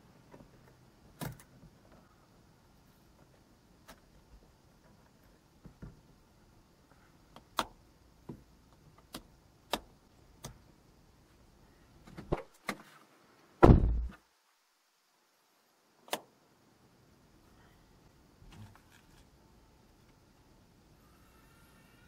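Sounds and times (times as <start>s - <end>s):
heavy thud: 13.6s - 14.2s.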